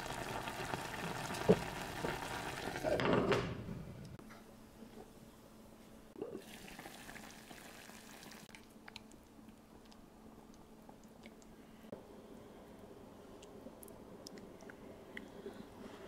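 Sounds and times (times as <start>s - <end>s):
broth bubbling and sizzling: 0.0s - 3.0s, 6.3s - 8.6s.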